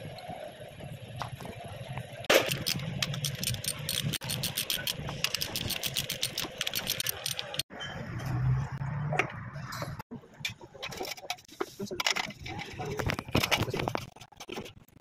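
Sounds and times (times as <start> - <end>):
metal hand tools clicking and scraping: 2.3 - 7.7.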